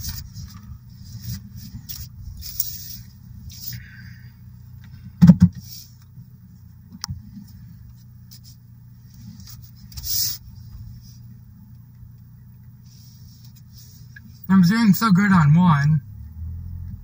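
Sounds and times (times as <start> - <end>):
car engine hum: 0.0 - 17.0
short hiss: 9.6 - 11.2.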